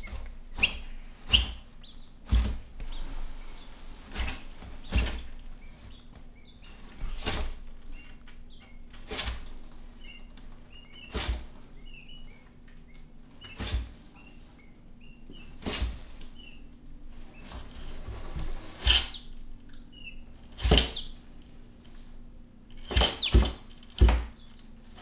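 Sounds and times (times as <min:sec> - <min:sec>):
chicks peeping: 0:10.0 - 0:12.4.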